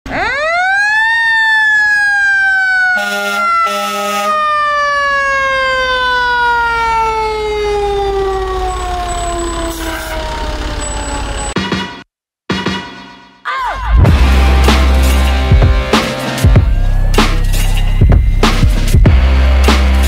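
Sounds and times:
mechanical siren wailing: 0:00.1 - 0:11.6
horn blasts: 0:02.9 - 0:04.4.

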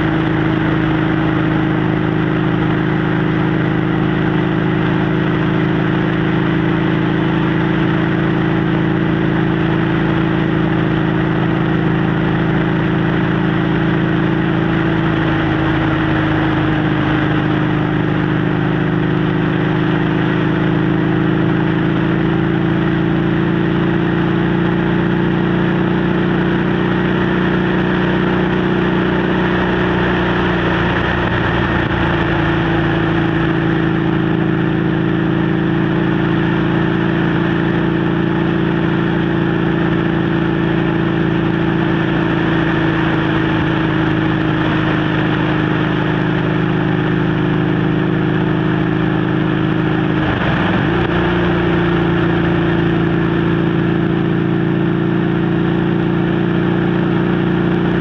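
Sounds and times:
motorcycle engine cruising: 0:00.0 - 0:58.0
wind rushing over microphone: 0:50.0 - 0:53.2.

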